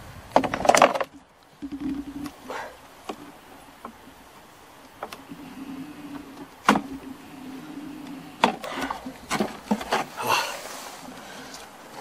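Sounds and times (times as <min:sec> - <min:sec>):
honey bee buzzing: 0:05.1 - 0:08.5.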